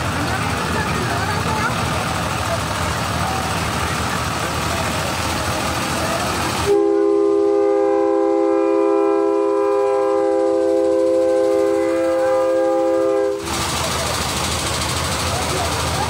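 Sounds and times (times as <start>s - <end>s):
street and crowd noise: 0.0s - 7.0s, 10.7s - 16.0s
multi-tone train horn chord: 6.7s - 13.4s.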